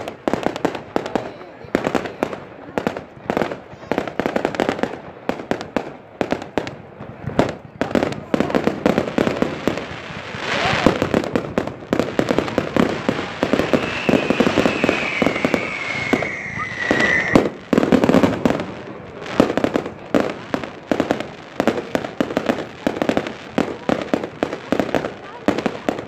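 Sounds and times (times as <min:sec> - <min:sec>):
fireworks bangs and crackle: 0:00.0 - 0:26.0
firework whistle sliding down: 0:13.4 - 0:17.6.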